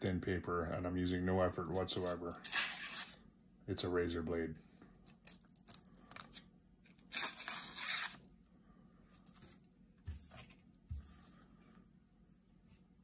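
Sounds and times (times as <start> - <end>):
knife slicing paper: 1.8 - 3.2, 7.0 - 8.2.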